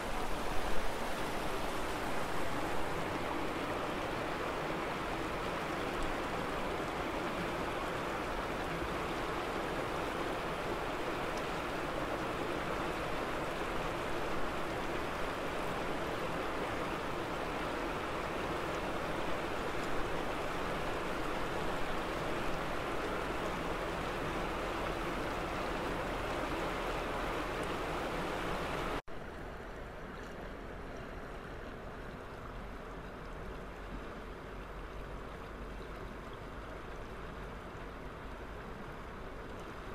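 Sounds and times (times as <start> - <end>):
water rushing over rocks: 0.0 - 29.0.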